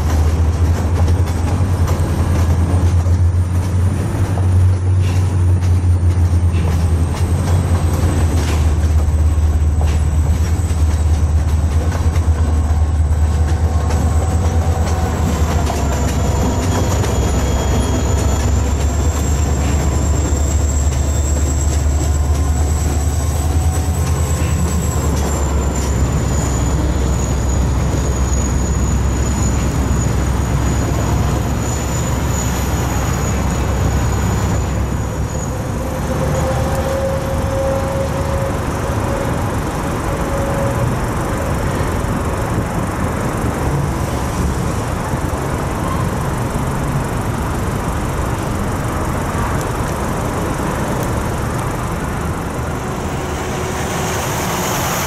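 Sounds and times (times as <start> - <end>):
freight train rumbling: 0.0 - 55.0
low wheel squeal: 4.3 - 41.8, 52.5 - 55.0
high-pitched wheel squeal: 12.5 - 41.8, 52.5 - 55.0.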